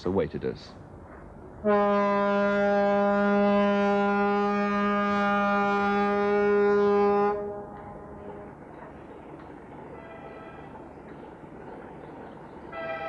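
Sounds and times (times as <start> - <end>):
ferry horn long blast: 1.6 - 8.4, 12.7 - 13.0.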